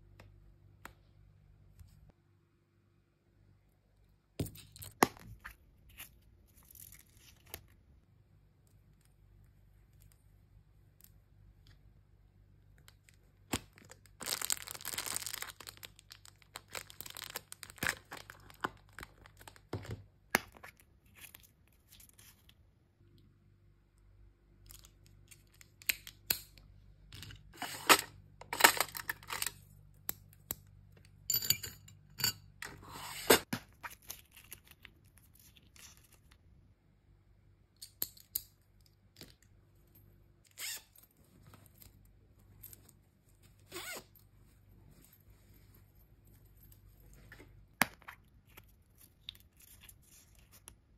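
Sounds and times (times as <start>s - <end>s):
packaging rustling and crinkling: 13.7s - 19.8s.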